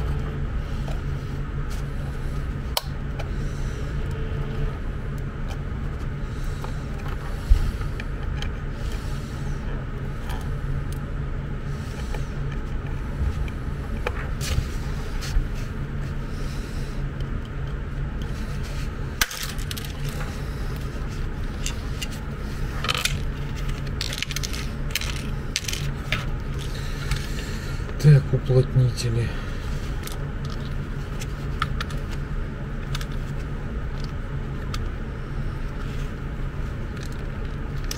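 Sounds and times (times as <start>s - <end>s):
steady low hum: 0.0s - 37.9s
plastic case clicking and scraping: 19.2s - 20.4s, 22.8s - 27.4s.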